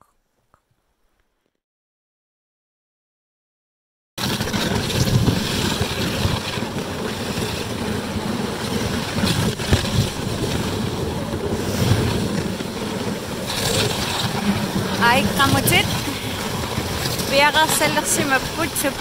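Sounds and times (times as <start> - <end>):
sled runners sliding over snow: 4.2 - 19.0
wind buffeting microphone: 4.2 - 19.0.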